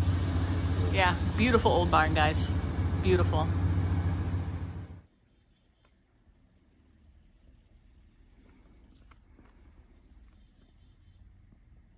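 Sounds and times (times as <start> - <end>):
low rumble: 0.0 - 5.0
small birds chirping: 4.5 - 11.9.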